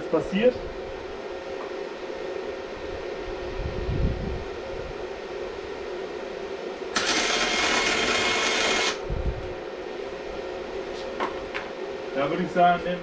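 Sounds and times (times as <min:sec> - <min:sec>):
steady hum: 0:00.0 - 0:13.0
welding arc burning: 0:06.9 - 0:09.0.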